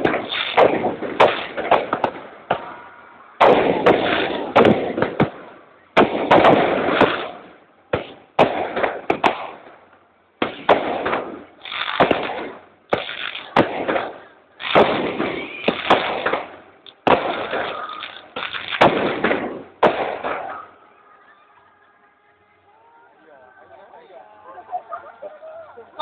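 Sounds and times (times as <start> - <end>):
firework shells bursting: 0.0 - 20.8.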